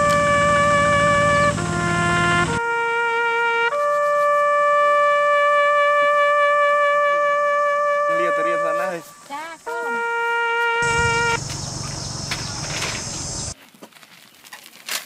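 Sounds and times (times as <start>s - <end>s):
music with held wind notes: 0.0s - 13.6s
faint wavering chirps: 10.8s - 13.6s.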